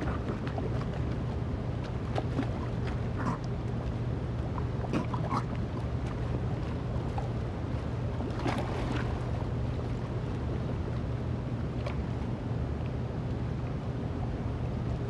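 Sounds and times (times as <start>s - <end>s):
water splashing and slapping: 0.0s - 13.4s
steady low hum: 0.0s - 15.0s.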